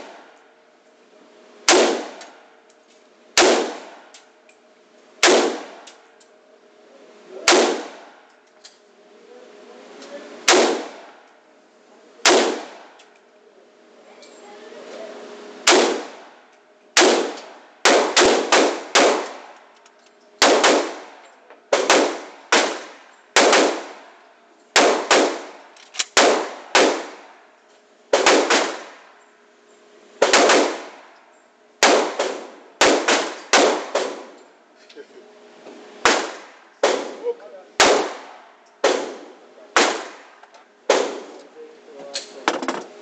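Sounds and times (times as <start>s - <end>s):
rifle shots echoing: 1.6s - 2.3s, 3.4s - 4.1s, 5.2s - 5.9s, 7.5s - 8.2s, 10.4s - 11.2s, 12.2s - 13.0s, 15.6s - 16.4s, 17.0s - 19.6s, 20.4s - 24.1s, 24.8s - 27.4s, 28.1s - 29.1s, 30.2s - 31.1s, 31.8s - 34.4s, 36.0s - 41.4s.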